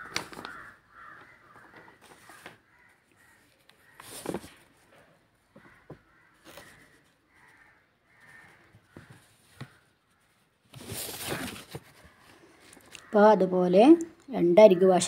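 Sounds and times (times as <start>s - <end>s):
fabric rustling: 0.0s - 4.9s, 5.6s - 12.7s.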